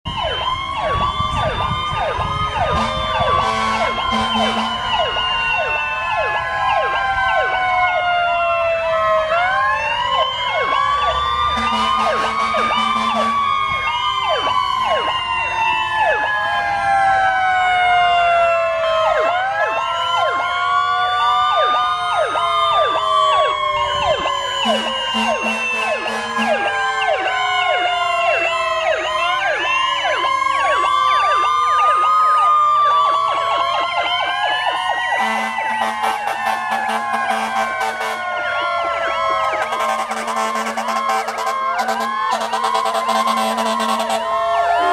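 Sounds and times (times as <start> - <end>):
emergency sirens wailing and yelping: 0.0 - 44.9
horn blasts: 2.7 - 5.0, 11.6 - 13.4, 24.6 - 26.8, 35.2 - 38.4, 39.6 - 44.9.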